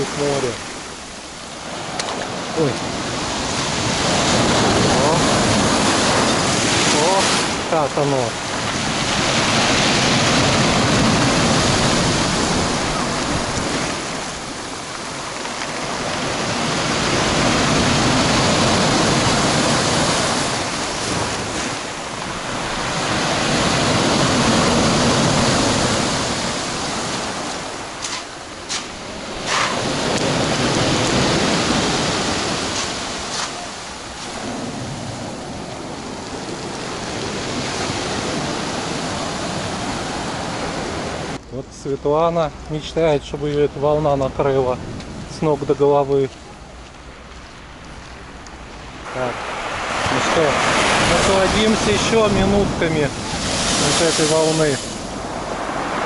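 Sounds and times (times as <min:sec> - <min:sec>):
surf breaking on shore: 0:00.0 - 0:41.4, 0:48.2 - 0:56.0.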